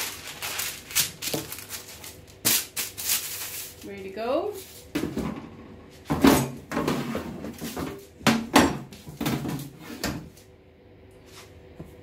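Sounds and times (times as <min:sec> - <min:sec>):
kitchen things knocking and clunking: 0:04.9 - 0:10.3.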